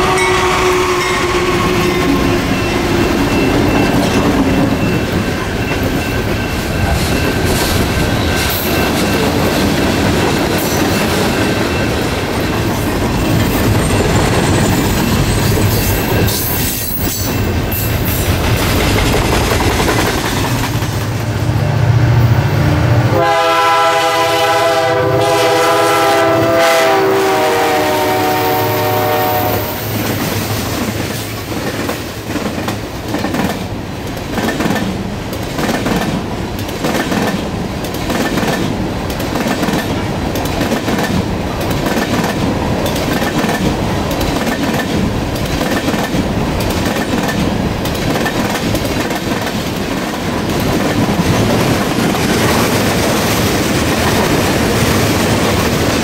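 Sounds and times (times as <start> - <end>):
locomotive air horn: 0.0 - 3.0, 22.6 - 29.9
train wheels clacking over rail joints: 2.1 - 21.3, 30.0 - 56.0.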